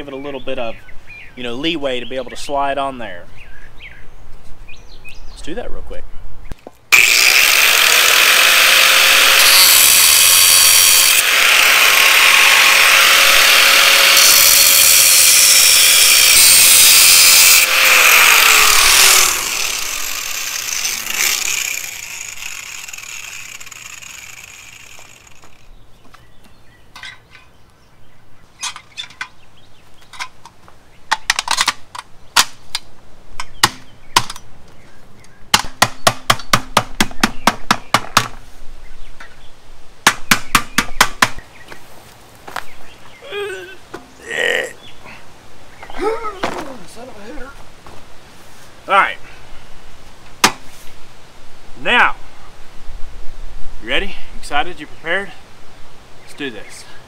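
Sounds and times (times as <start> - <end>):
angle grinder cutting metal: 6.9 - 25.7.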